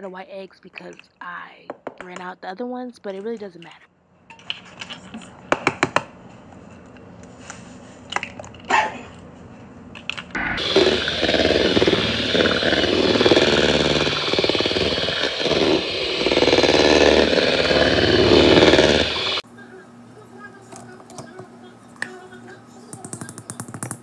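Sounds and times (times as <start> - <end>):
electric hand mixer running: 10.4 - 19.4.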